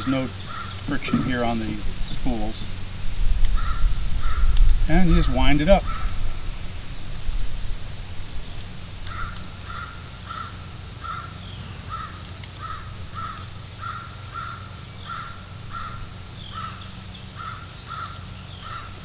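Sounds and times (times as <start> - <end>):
crow cawing: 0.4 - 1.4, 3.5 - 4.6, 5.8 - 6.2, 9.1 - 19.0.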